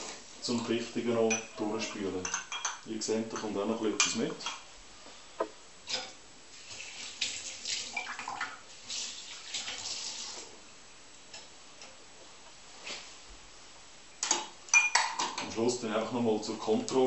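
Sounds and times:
water running and splashing: 6.5s - 10.6s.

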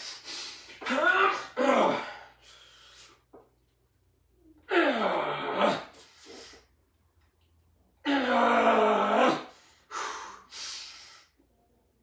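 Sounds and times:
man grunting with strain: 0.8s - 2.3s.

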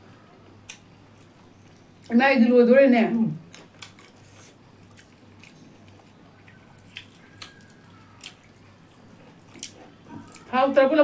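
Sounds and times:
low steady hum: 0.0s - 11.0s
wet chewing smacks: 3.6s - 10.5s.

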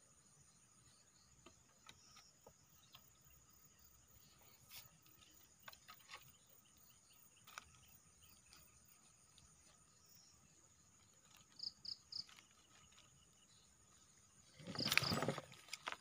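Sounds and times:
crickets trilling: 0.0s - 16.0s.

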